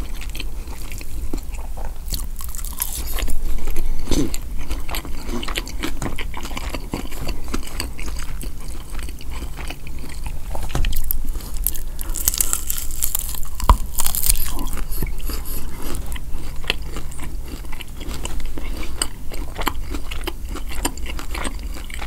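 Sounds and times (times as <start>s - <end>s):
chewing: 0.0s - 22.0s
crisp crunching bites: 2.1s - 3.4s, 10.9s - 22.0s.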